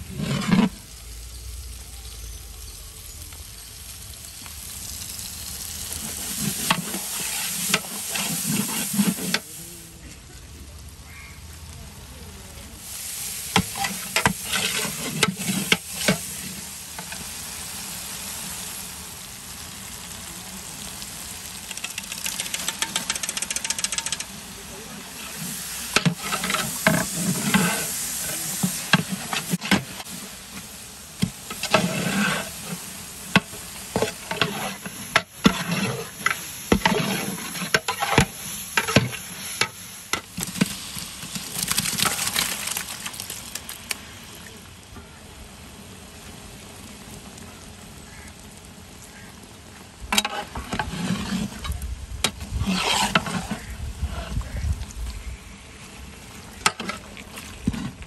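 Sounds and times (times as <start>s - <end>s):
metal ladle scraping a pot: 0.0s - 0.8s, 13.6s - 16.3s, 25.3s - 30.1s, 31.5s - 32.8s, 33.4s - 40.3s, 50.2s - 51.8s, 52.4s - 54.5s
masala sizzling: 0.0s - 58.0s.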